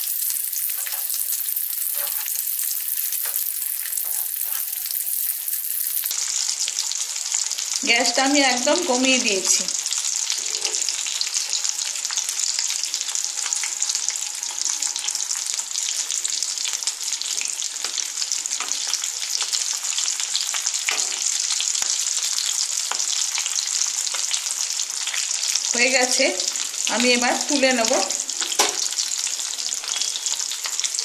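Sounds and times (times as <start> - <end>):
food sizzling in hot oil: 0.0 - 31.0
metal spatula scraping: 0.1 - 6.1.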